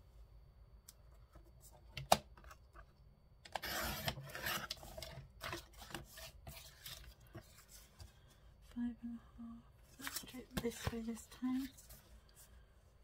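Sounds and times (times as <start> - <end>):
blade scraping paper: 3.5 - 7.2
paper rustles and taps: 10.0 - 11.2.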